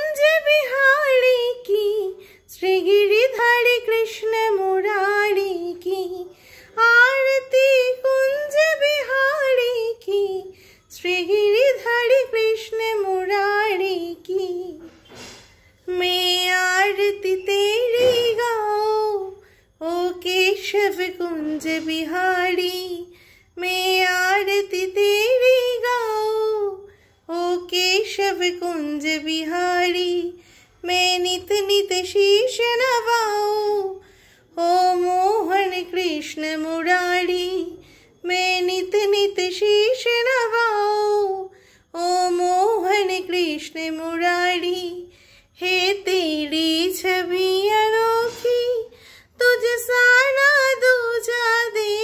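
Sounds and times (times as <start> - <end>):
high voice singing devotional song: 0.0 - 52.0.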